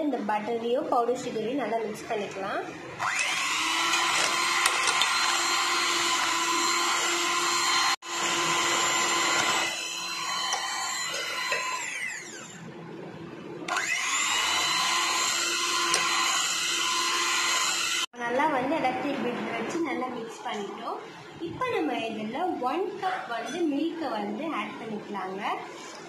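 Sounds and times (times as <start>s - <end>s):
electric hand mixer whining: 3.0s - 12.6s, 13.7s - 18.1s.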